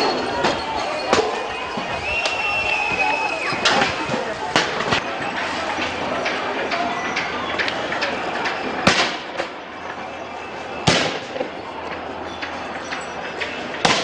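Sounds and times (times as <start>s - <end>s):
street din: 0.0s - 14.0s
loud sharp bangs: 0.4s - 6.4s, 8.2s - 9.6s, 10.8s - 11.6s, 13.8s - 14.0s.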